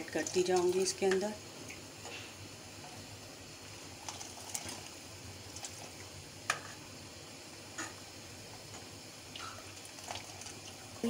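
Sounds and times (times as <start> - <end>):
ladle stirring soup: 4.0 - 6.8, 9.3 - 11.0.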